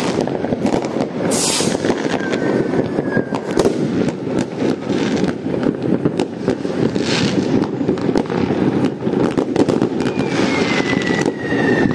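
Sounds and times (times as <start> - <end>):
fireworks crackling and banging: 0.0 - 11.9
firework whistle sliding down: 1.2 - 3.7, 10.0 - 11.9.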